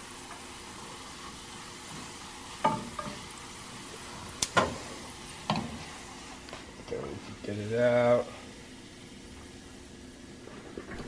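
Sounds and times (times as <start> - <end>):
garlic sizzling in oil: 0.0 - 10.7
spoon knocking against pan: 2.6 - 3.2.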